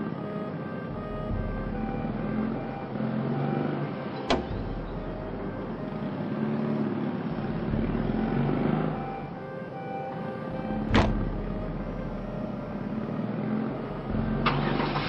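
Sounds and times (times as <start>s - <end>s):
car door click: 4.3s - 4.7s, 10.9s - 11.3s.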